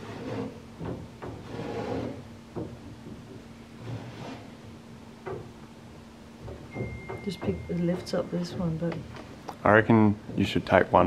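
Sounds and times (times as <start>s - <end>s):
wood scraping on wood: 0.0s - 2.3s, 3.8s - 4.6s.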